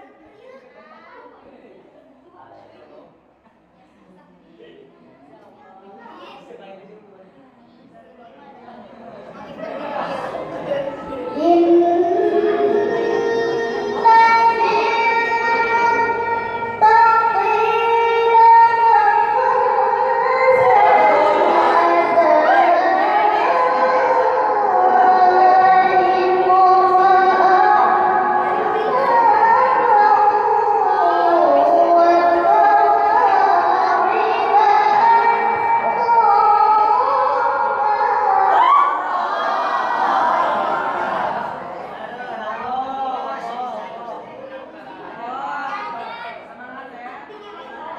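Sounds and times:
girl reciting in high voice: 0:11.0 - 0:39.1.

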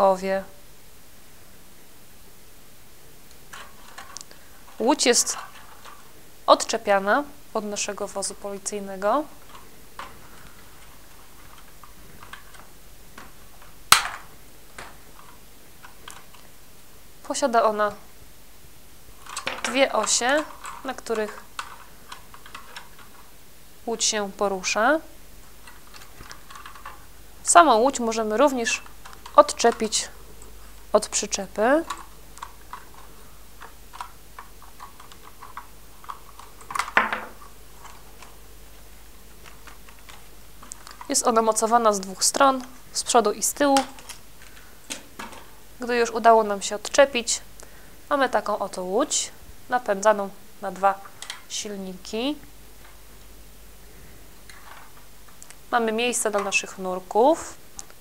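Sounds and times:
plastic clatter: 0:31.8 - 0:38.3, 0:43.8 - 0:45.5.

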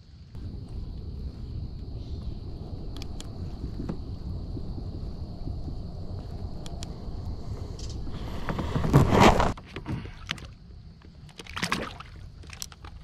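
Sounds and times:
wind rumble on microphone: 0:00.0 - 0:09.6
water sloshing and splashing: 0:08.9 - 0:13.0.

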